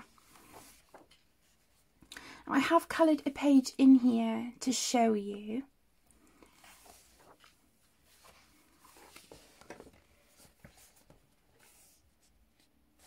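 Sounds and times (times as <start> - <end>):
paper pages rustling: 0.0 - 1.8, 6.2 - 13.0.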